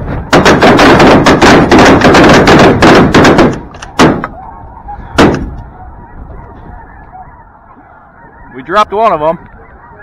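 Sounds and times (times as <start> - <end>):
shotgun fire: 0.3 - 4.3, 5.2 - 5.5
geese honking: 3.8 - 10.0.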